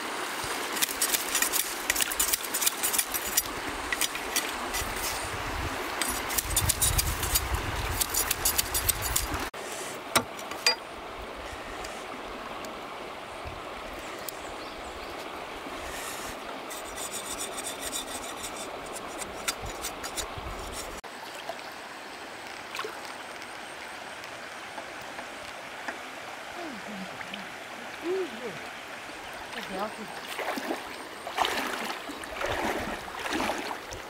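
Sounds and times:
flowing stream water: 0:00.0 - 0:34.0.

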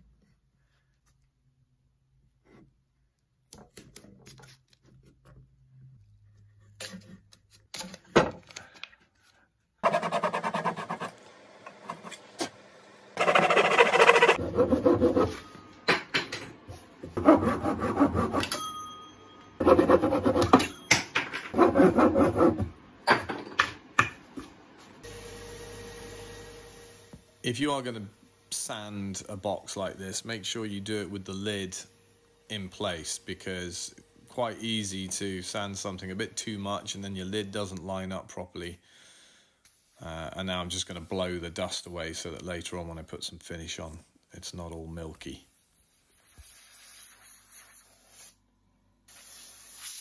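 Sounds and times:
sandpaper rubbing on wood: 0:09.8 - 0:11.1, 0:13.2 - 0:15.3, 0:49.1 - 0:50.0
hand saw cutting wood: 0:09.8 - 0:11.2, 0:13.2 - 0:15.4, 0:17.2 - 0:18.5, 0:21.5 - 0:22.7.

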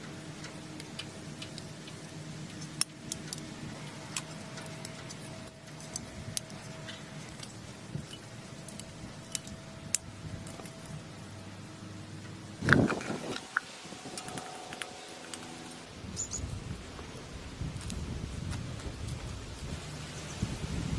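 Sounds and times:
wire clicking on steel: 0:00.0 - 0:11.2
steady low hum: 0:00.0 - 0:20.9.

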